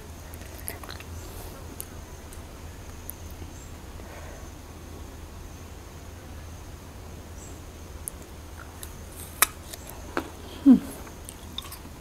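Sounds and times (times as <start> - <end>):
mouth clicks and smacks: 0.3 - 1.2
person humming mm: 10.4 - 11.1.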